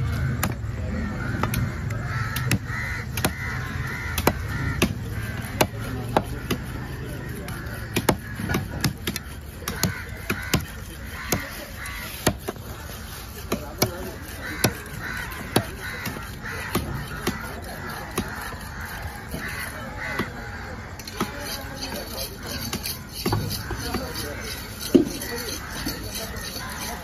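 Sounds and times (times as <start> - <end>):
crows cawing: 0.0 - 27.0.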